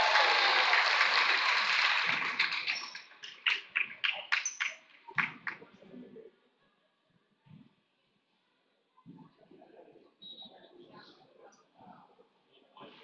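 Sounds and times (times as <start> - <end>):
crowd applauding: 0.0 - 5.6
scattered claps: 0.0 - 5.8.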